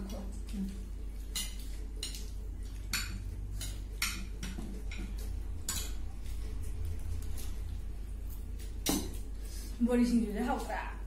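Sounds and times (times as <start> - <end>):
utensils clinking on a dish: 1.2 - 6.4.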